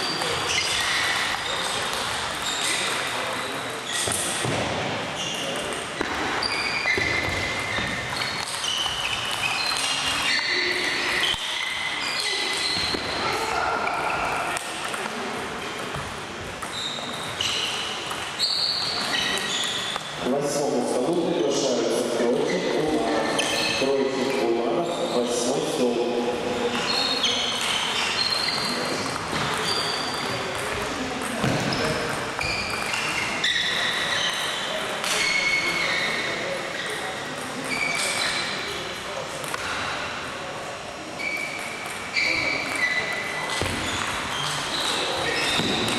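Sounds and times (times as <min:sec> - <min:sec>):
table tennis balls clicking: 0:14.2 - 0:20.1, 0:27.5 - 0:35.2.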